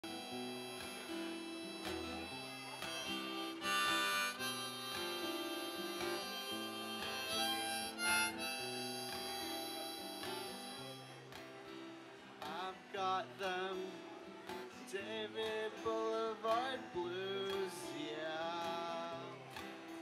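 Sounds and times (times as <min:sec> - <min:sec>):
harmonica: 0:00.0 - 0:11.5
acoustic guitar fingerpicked and strummed: 0:00.0 - 0:20.0.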